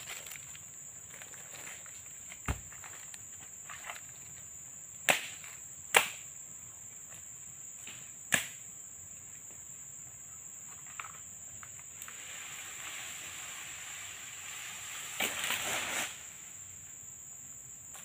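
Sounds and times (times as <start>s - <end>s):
insects buzzing: 0.0s - 18.0s
sharp cracks: 5.0s - 6.2s, 8.3s - 8.6s.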